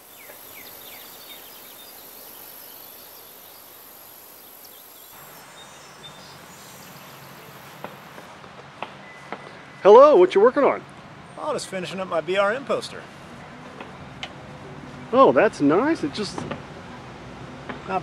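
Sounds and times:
high-pitched insect buzz: 0.0 - 8.2
birds chirping: 0.0 - 8.3
distant traffic hum: 0.0 - 18.0.

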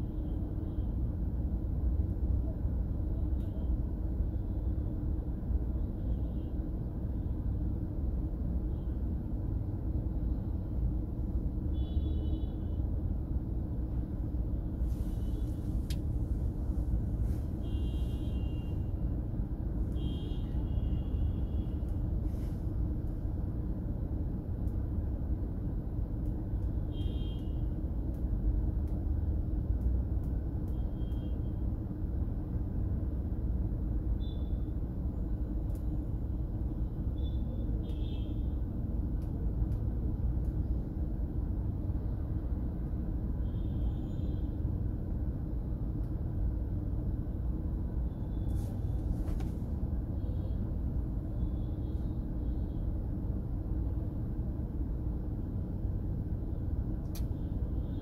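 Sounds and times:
vehicle road rumble: 13.2 - 31.3, 37.8 - 52.3.

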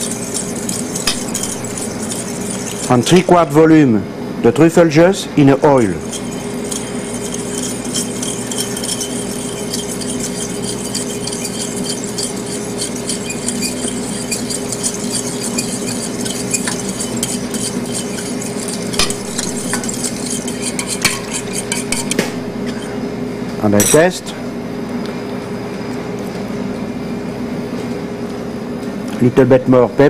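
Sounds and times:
low hum: 0.0 - 3.3
fork whisking in metal bowl: 0.0 - 3.8, 5.4 - 23.0.

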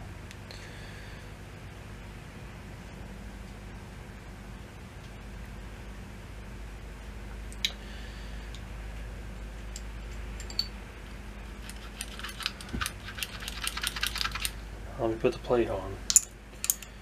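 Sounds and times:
small metal parts clicking: 9.7 - 10.7, 11.6 - 14.6, 16.1 - 17.0.

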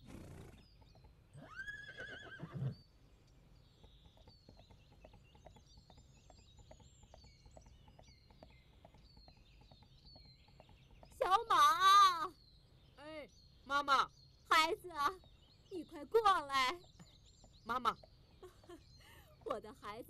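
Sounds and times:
hooves clip-clopping: 0.0 - 12.5, 14.0 - 20.0
horse whinnying: 1.4 - 2.8.

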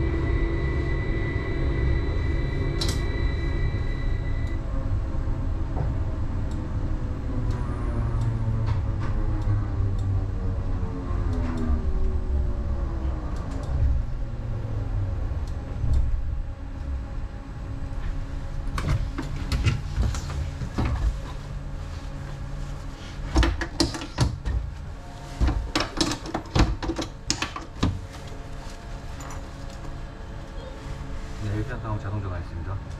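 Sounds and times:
light rail car rumbling to a stop: 0.0 - 21.8
clicks and knocks from controls: 23.3 - 24.7, 25.4 - 28.0.

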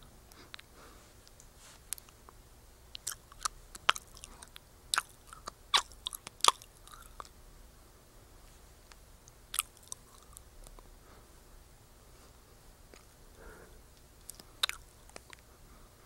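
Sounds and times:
gum chewing wet smacks: 2.9 - 7.4, 8.9 - 10.8, 12.9 - 13.1, 14.2 - 15.5.

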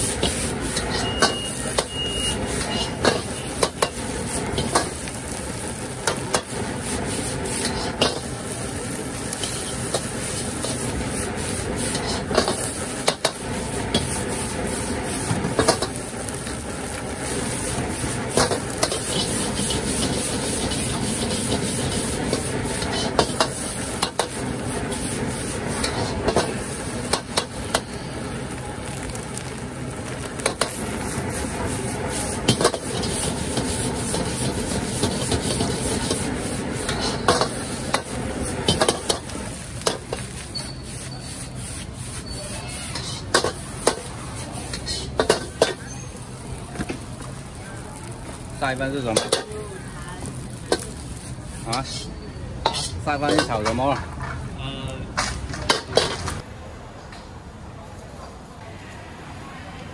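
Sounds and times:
metal ladle scraping wok: 0.0 - 28.2, 30.1 - 46.4, 49.0 - 54.6
gas flame hissing: 0.0 - 53.6
food sizzling in a wok: 0.0 - 56.5.

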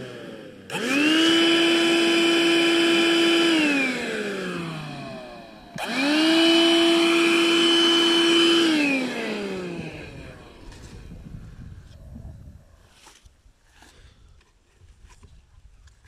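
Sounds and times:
vacuum cleaner motor whine: 0.0 - 11.5.

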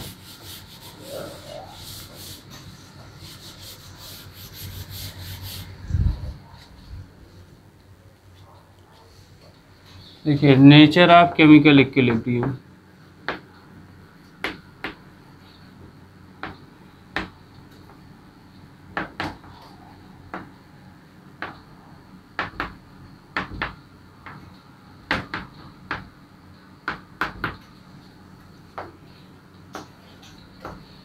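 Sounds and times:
chalk tapping on blackboard: 0.0 - 5.6, 25.1 - 26.1.

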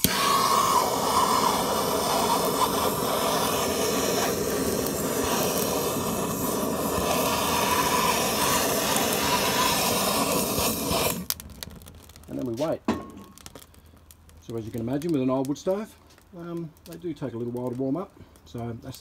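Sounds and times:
gas torch hissing: 0.0 - 11.6.

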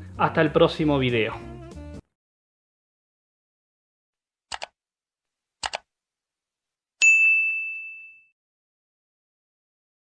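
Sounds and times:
bell ding: 7.0 - 8.4.

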